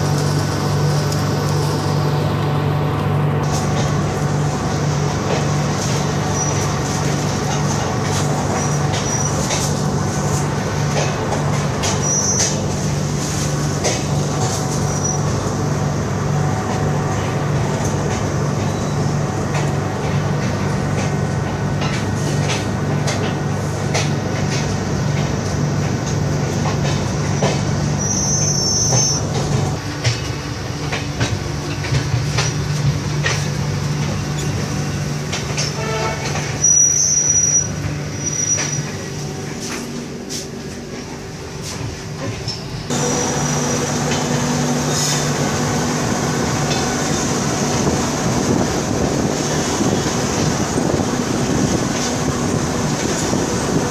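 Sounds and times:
train coach running hum: 0:00.0 - 0:53.9
high wheel squeals: 0:06.3 - 0:06.7, 0:08.5 - 0:09.5, 0:11.8 - 0:12.6, 0:14.7 - 0:15.3, 0:27.3 - 0:29.3, 0:35.6 - 0:39.0
wheels clicking over rail joints: 0:19.5 - 0:40.0.

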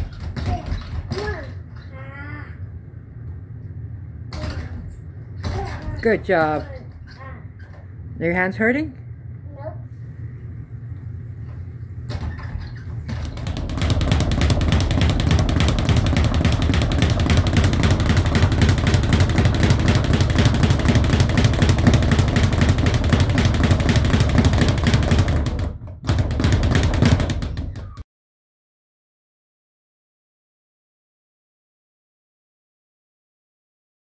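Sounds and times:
speed bag punched rapidly: 0:12.1 - 0:28.0.

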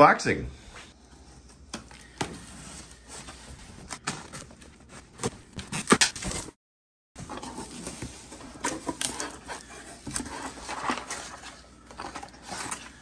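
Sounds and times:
knife slitting packing tape: 0:05.2 - 0:06.5.

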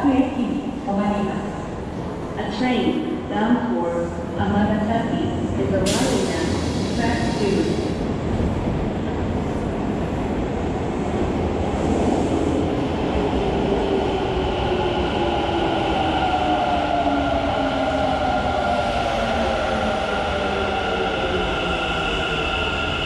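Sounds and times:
electric train rumbling: 0:03.1 - 0:23.0.

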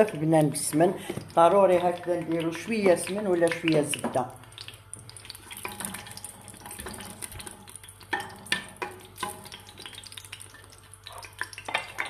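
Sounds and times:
fat sizzling: 0:00.0 - 0:12.0
wooden spoon stirring in a pot: 0:05.0 - 0:12.0.

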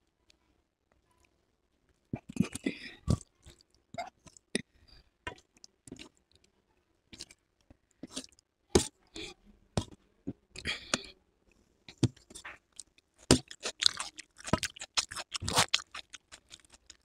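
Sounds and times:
fingers mixing wet food: 0:12.0 - 0:17.0.

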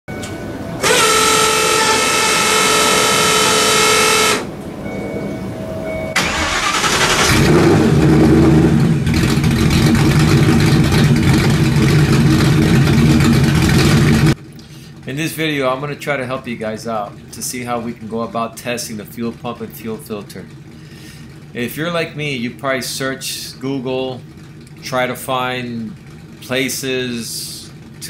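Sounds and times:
loud steady tone with overtones: 0:00.1 - 0:06.2
car engine starting and idling: 0:00.1 - 0:28.0.

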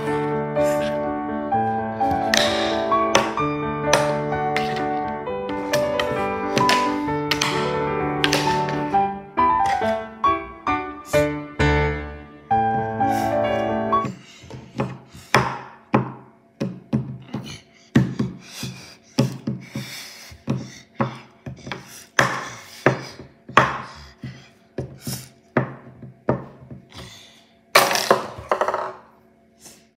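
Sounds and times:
piano music: 0:00.0 - 0:15.6.

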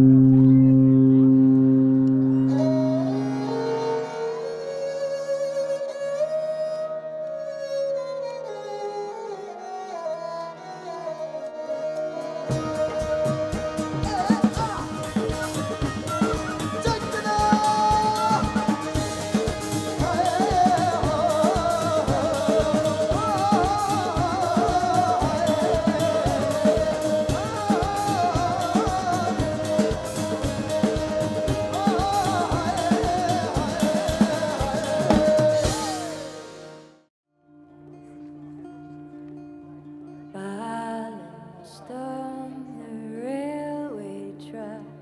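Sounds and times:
person singing: 0:00.0 - 0:05.9, 0:09.9 - 0:36.6
band playing: 0:00.0 - 0:06.3, 0:10.3 - 0:37.1
guitar: 0:00.0 - 0:45.0
drum kit beat: 0:12.5 - 0:37.0.

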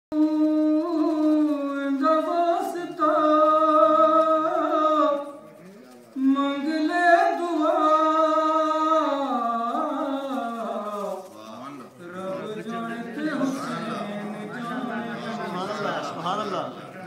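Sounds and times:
man singing devotional song: 0:00.1 - 0:05.5, 0:06.1 - 0:16.0.

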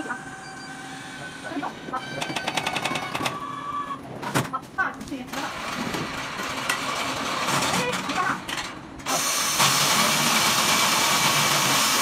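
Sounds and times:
plastering machines running: 0:00.0 - 0:04.0, 0:05.3 - 0:12.0.

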